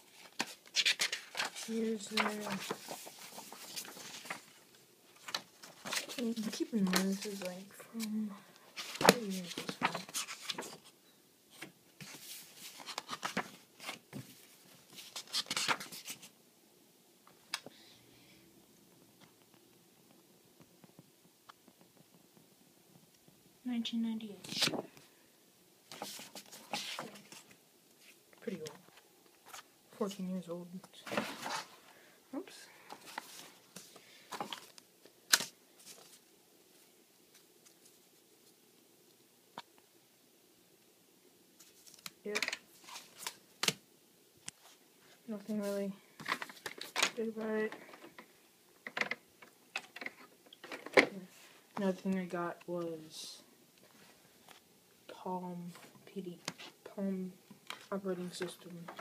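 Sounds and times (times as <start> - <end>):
paper rustling and crinkling: 0.0 - 8.2, 8.8 - 10.9, 11.5 - 16.3, 24.4 - 25.0, 25.9 - 30.2, 31.0 - 31.8, 32.8 - 38.6, 41.6 - 43.8, 45.4 - 48.3.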